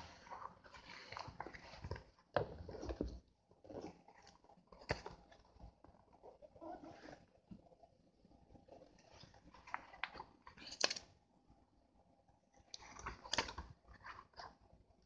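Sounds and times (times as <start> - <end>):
book pages flipping: 0.0 - 7.3, 8.7 - 11.1, 12.7 - 14.6.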